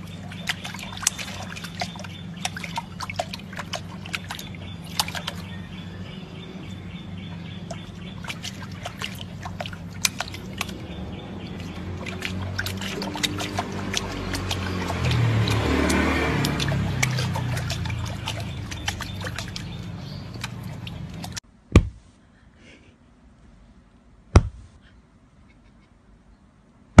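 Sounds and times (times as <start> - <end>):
water splashing in stone basin: 0.0 - 6.0, 7.3 - 21.9
steady low hum: 0.0 - 15.4.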